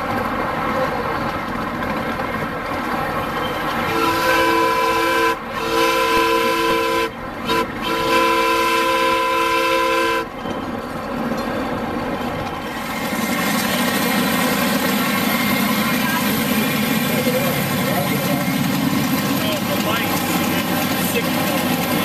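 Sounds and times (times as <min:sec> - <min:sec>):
train running noise: 0:00.0 - 0:22.0
steam locomotive chime whistle: 0:03.4 - 0:10.5.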